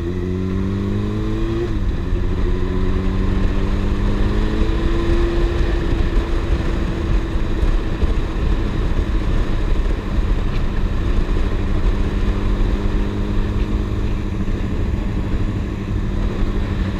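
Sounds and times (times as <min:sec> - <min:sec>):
motorcycle engine running: 0:00.0 - 0:16.9
wind noise on microphone: 0:00.0 - 0:16.9.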